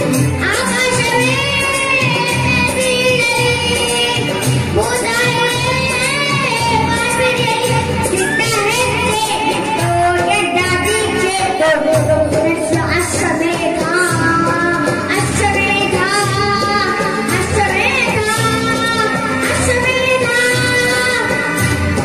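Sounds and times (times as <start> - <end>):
boy singing into a microphone: 0.0 - 22.0
music with a steady beat: 0.0 - 22.0.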